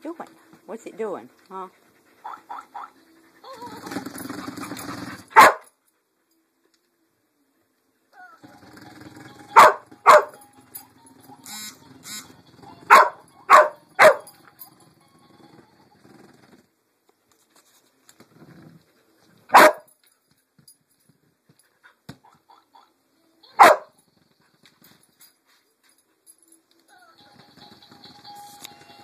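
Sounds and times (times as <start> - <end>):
dog barking: 2.2 - 3.0, 5.4 - 5.7, 9.6 - 10.4, 12.9 - 14.3, 19.5 - 19.9, 23.5 - 24.0.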